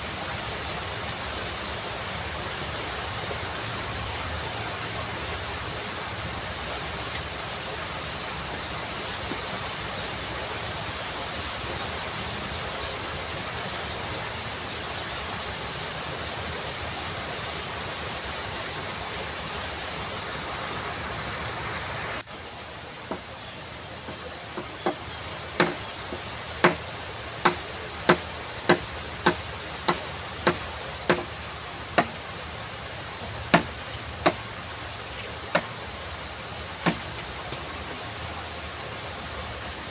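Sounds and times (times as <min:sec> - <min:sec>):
insects droning: 0:00.0 - 0:39.9
steady hiss: 0:00.0 - 0:39.9
machete chopping bamboo: 0:24.6 - 0:31.4, 0:32.0 - 0:32.2, 0:33.5 - 0:34.4, 0:35.5 - 0:35.7, 0:36.8 - 0:37.1.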